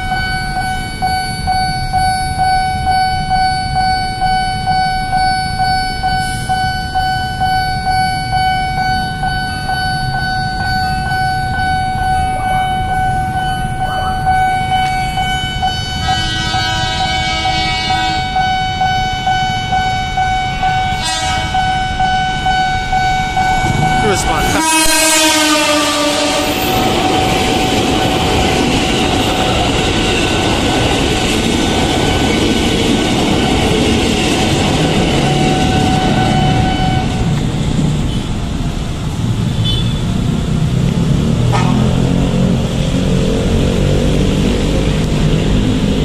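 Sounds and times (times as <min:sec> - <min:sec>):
level crossing bell ringing: 0:00.0 - 0:16.5, 0:18.2 - 0:25.3
electric train horn: 0:15.2 - 0:27.3, 0:35.1 - 0:37.4, 0:41.5 - 0:42.2
wind and traffic rumble: 0:17.0 - 0:46.0.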